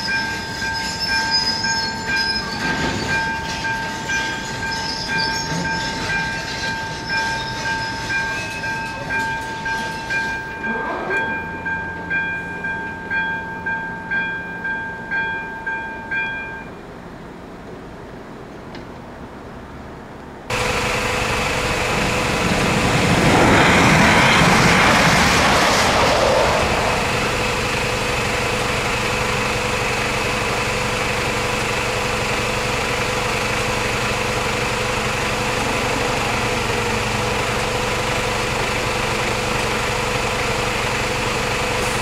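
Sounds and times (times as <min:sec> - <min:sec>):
rushing sound: 0:20.5 - 0:29.8.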